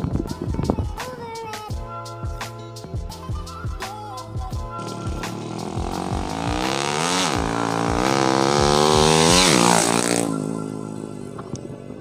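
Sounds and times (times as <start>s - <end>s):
motorcycle engine accelerating hard: 4.8s - 11.7s.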